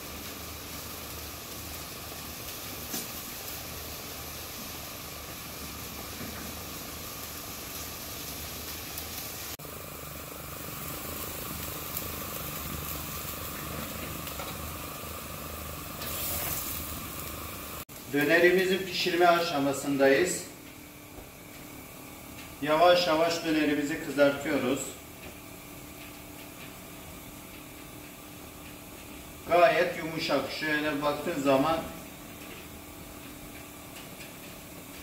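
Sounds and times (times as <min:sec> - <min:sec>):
grill hissing with low hum: 0:00.0 - 0:35.0.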